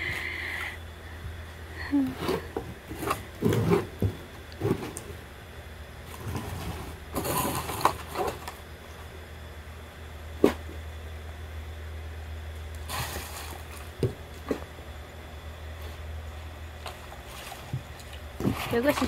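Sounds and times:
low steady hum: 0:00.0 - 0:19.0
handling knocks and clatters: 0:16.8 - 0:19.0.

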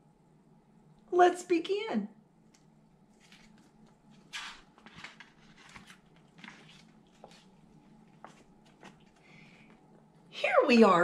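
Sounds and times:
book pages rustling: 0:03.1 - 0:09.8.

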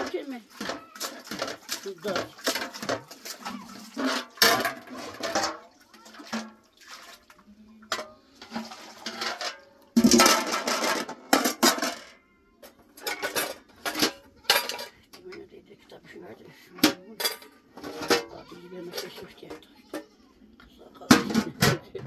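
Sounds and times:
milk pouring and splashing: 0:00.0 - 0:10.5
metal pots clanking: 0:00.0 - 0:15.5, 0:16.8 - 0:20.1, 0:21.0 - 0:22.0.

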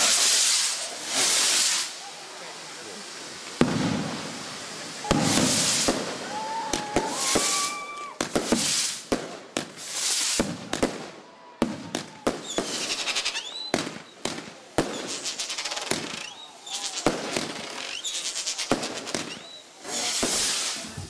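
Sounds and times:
whistling fireworks: 0:00.0 - 0:02.4, 0:03.6 - 0:21.0
firework crackle: 0:00.0 - 0:21.0
rockets hissing upward: 0:00.0 - 0:21.0
firework shells bursting: 0:03.6 - 0:11.1.

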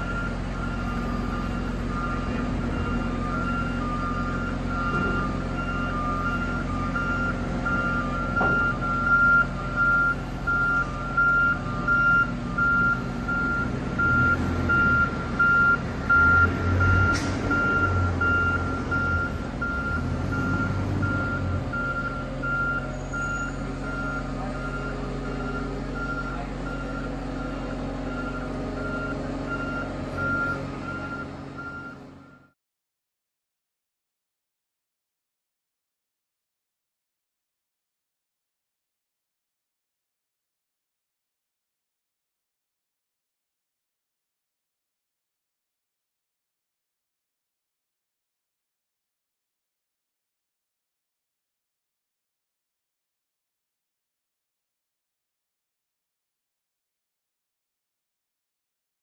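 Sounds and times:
diesel engine running: 0:00.0 - 0:32.6
travel alarm beeping: 0:00.0 - 0:32.6.

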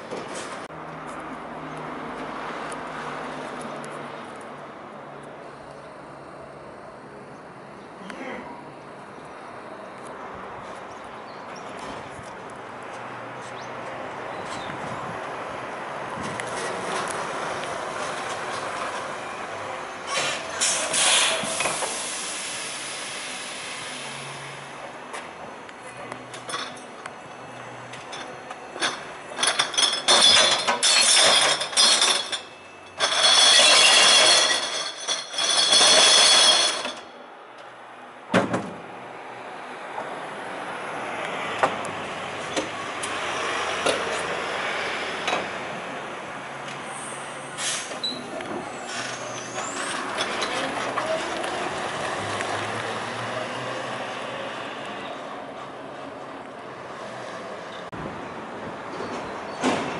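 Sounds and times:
tyre and road noise: 0:00.0 - 0:59.9
glass bottles crashing and clinking: 0:29.4 - 0:37.0.

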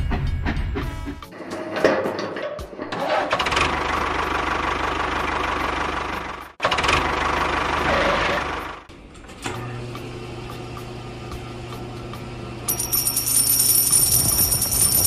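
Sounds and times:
small electric motor humming: 0:12.7 - 0:15.0.

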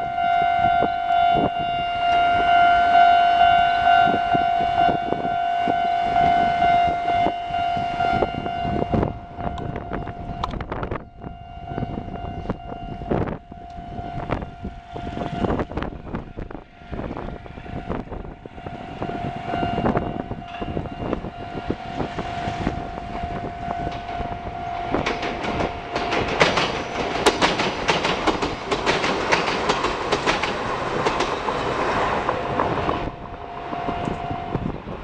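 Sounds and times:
steady high tone: 0:00.0 - 0:27.3, 0:32.5 - 0:35.0
train wheels clacking on rails: 0:18.7 - 0:35.0.

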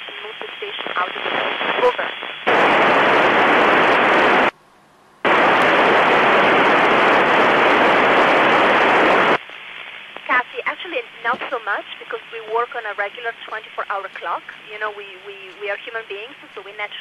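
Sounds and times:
radio receiver hiss: 0:00.0 - 0:04.6, 0:05.2 - 0:17.0.

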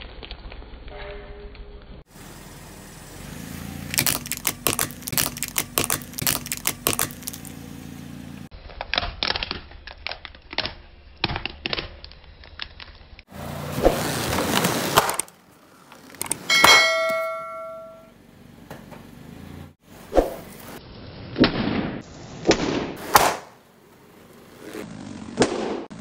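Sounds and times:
car engine hum: 0:02.1 - 0:08.5, 0:15.3 - 0:20.8
toy cars cracking and snapping: 0:03.9 - 0:07.5, 0:08.5 - 0:13.2, 0:13.9 - 0:16.5
balloons snapping: 0:04.0 - 0:07.4, 0:14.6 - 0:15.3, 0:22.5 - 0:23.5.

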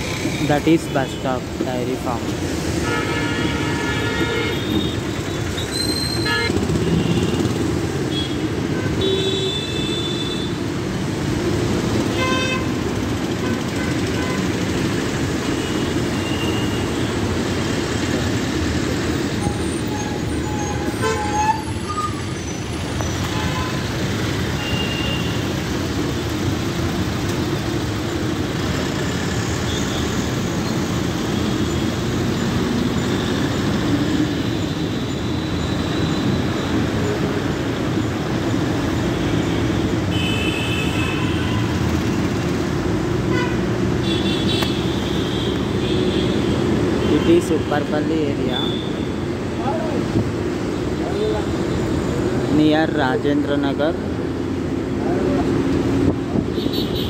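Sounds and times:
bus engine and road rumble: 0:00.0 - 0:09.0, 0:10.4 - 0:40.1, 0:41.4 - 0:57.0.

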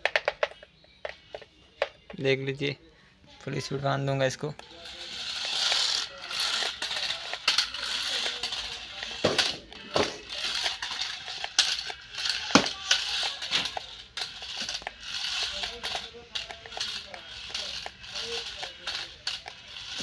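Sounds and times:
electric motors whining: 0:04.6 - 0:20.0
wheels and plastic body clattering: 0:04.6 - 0:20.0
toy car tumbling knocks: 0:05.1 - 0:20.0.

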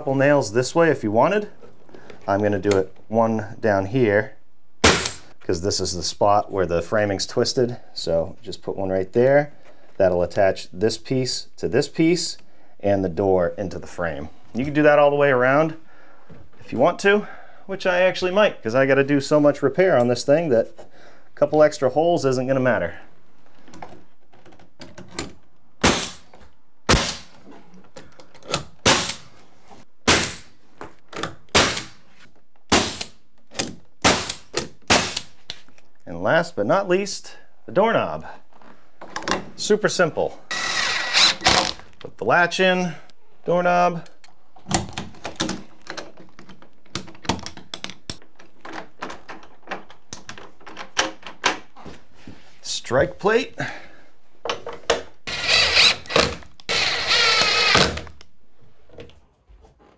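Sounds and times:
nail gun firing: 0:04.8 - 0:05.3, 0:26.9 - 0:27.3, 0:28.8 - 0:29.2, 0:30.1 - 0:30.5, 0:31.5 - 0:32.0, 0:32.7 - 0:33.2, 0:34.0 - 0:35.3, 0:55.3 - 0:58.0.

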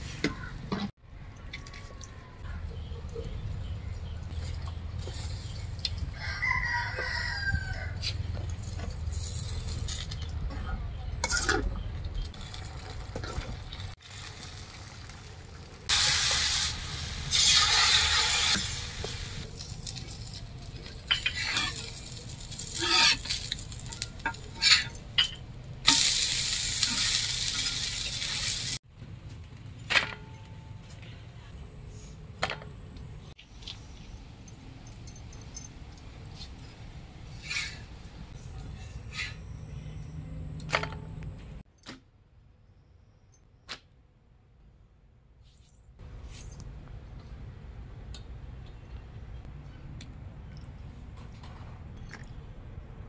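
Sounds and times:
batter sizzling on a griddle: 0:13.8 - 0:24.8, 0:25.9 - 0:28.8
ladle clinking and scraping: 0:17.3 - 0:28.6.

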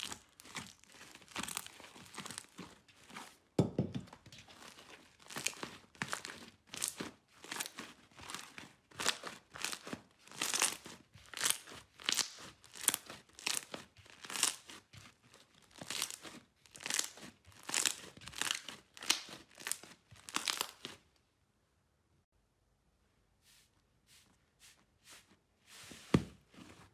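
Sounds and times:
slime crackling when squeezed: 0:05.2 - 0:14.8, 0:15.7 - 0:21.0.

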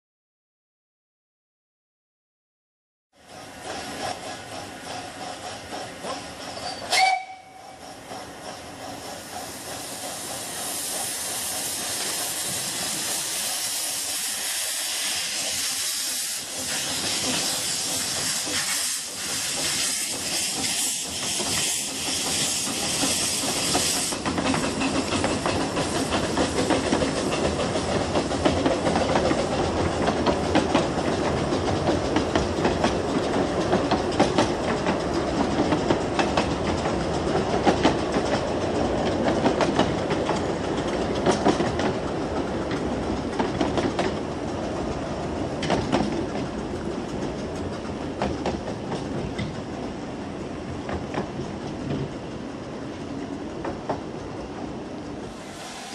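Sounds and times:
steam hissing: 0:03.3 - 0:29.7, 0:55.2 - 0:55.9
steam whistle blast: 0:06.6 - 0:07.8.

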